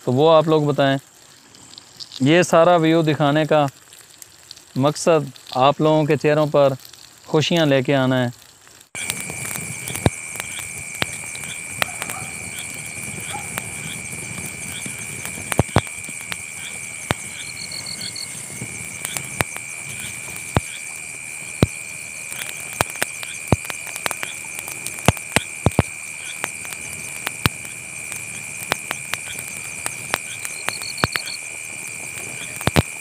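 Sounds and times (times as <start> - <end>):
campfire crackling and popping: 0.0 - 33.0
chorus of night insects: 0.0 - 33.0
short pulsed insect trill: 9.0 - 33.0.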